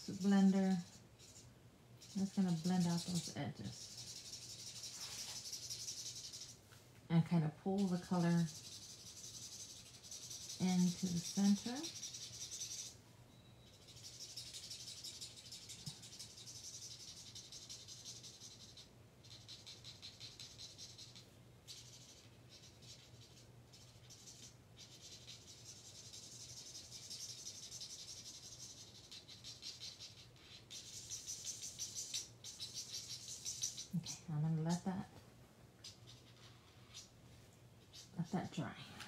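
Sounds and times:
marker nib rubbing on cardstock: 0:00.0 - 0:06.6, 0:07.7 - 0:13.0, 0:13.7 - 0:34.9
steady low hum: 0:00.0 - 0:19.8.

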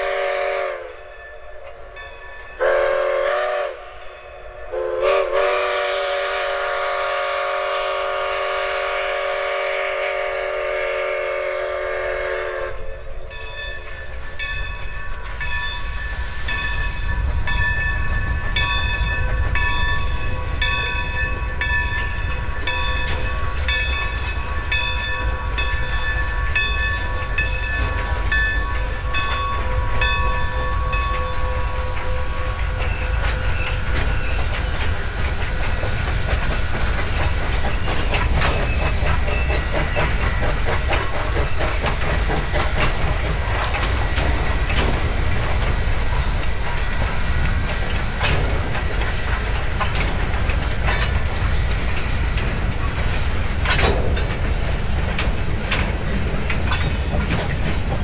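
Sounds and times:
steam locomotive whistle blasts: 0:00.0 - 0:01.2, 0:02.6 - 0:04.0, 0:04.7 - 0:13.4
train rolling by: 0:00.0 - 0:58.0.

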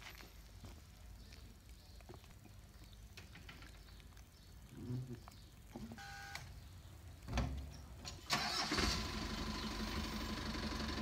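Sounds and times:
truck motor humming: 0:08.4 - 0:11.0.

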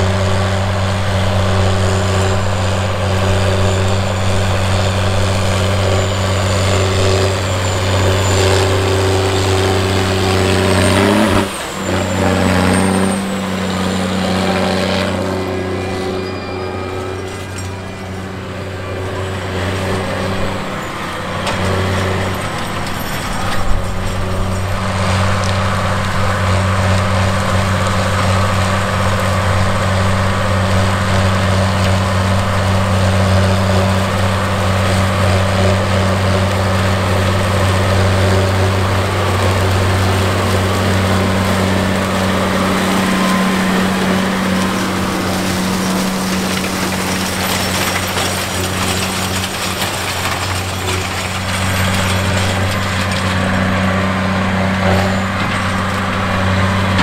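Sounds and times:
tractor diesel engine droning: 0:00.0 - 0:57.0.

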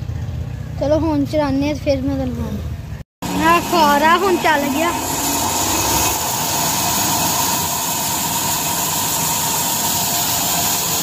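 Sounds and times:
band saw running: 0:03.2 - 0:11.0.

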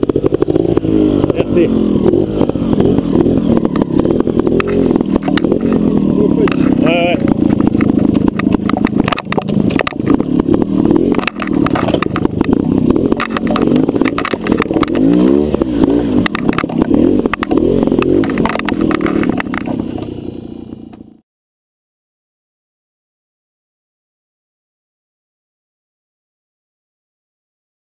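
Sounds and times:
motorcycle engine revving: 0:00.0 - 0:21.2.

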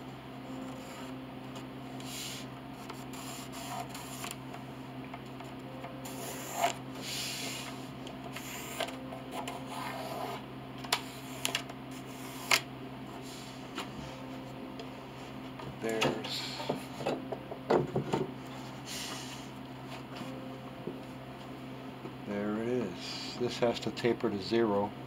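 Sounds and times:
steady low hum: 0:00.0 - 0:25.0
pencil scratching on wood: 0:02.1 - 0:04.4, 0:06.1 - 0:07.7.

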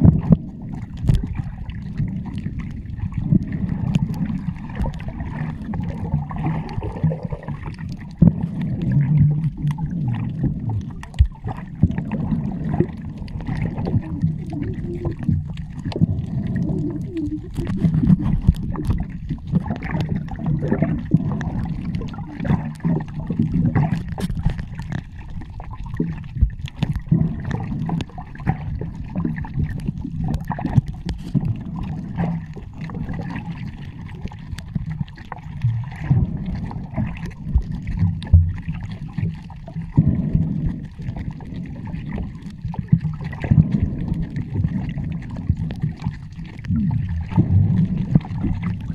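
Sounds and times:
underwater rumble and bubbles: 0:00.0 - 0:48.9
small clicks and pops: 0:00.2 - 0:12.1, 0:12.8 - 0:36.0, 0:36.6 - 0:40.0, 0:44.1 - 0:48.9.

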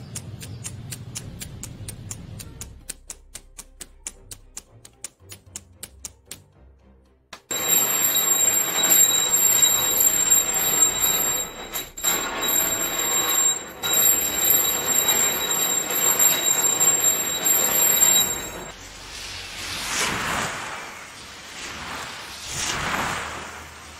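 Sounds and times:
alarm clock bell ringing: 0:07.5 - 0:18.8
wave washing on sand: 0:19.4 - 0:23.9.

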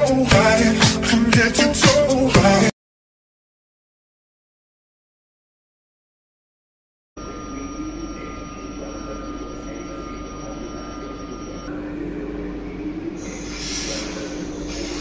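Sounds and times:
thin whine: 0:07.2 - 0:15.0.

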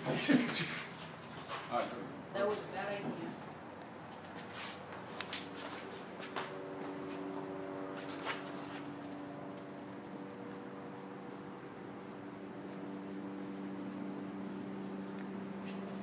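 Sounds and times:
crickets trilling: 0:00.0 - 0:16.0
low steady hum: 0:05.0 - 0:16.0.

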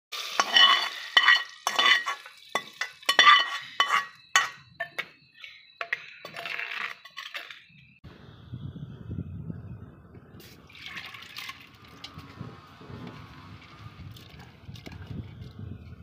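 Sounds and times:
metal spoon clinking on pan: 0:00.4 - 0:06.5.

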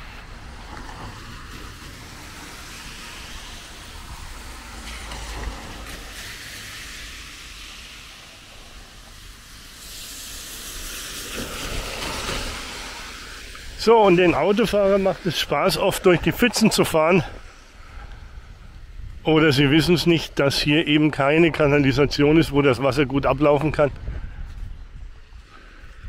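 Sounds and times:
tyres hissing on wet road: 0:00.0 - 0:21.2.

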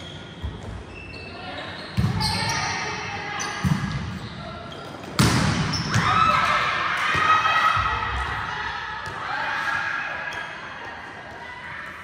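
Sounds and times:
players shouting in echoing hall: 0:01.2 - 0:12.0.

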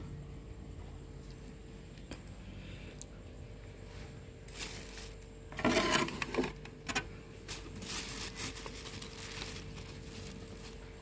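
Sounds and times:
plastic sheeting crinkling: 0:04.4 - 0:06.5, 0:07.3 - 0:11.0.

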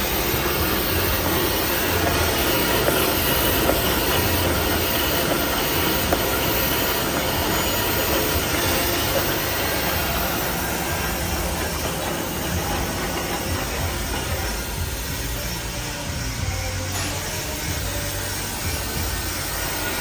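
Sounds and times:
band saw cutting machine running: 0:00.0 - 0:20.0.

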